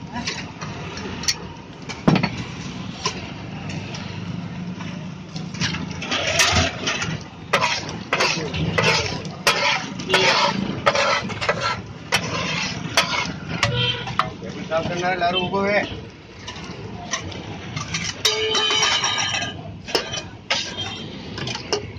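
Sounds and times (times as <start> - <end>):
metal spatula scraping iron griddle: 5.5 - 15.2, 16.3 - 21.9.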